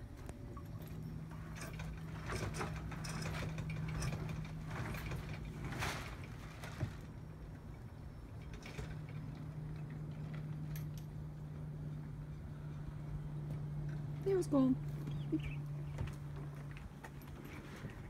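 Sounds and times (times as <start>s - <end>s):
steady low hum: 0.0s - 18.0s
sail cloth rustling: 2.0s - 7.2s.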